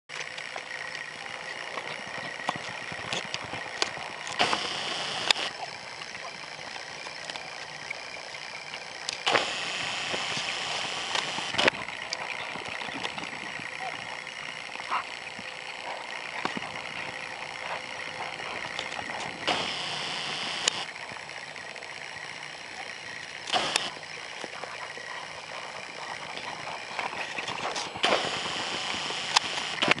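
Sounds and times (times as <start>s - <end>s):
hoof thuds in dirt: 1.6s - 4.6s.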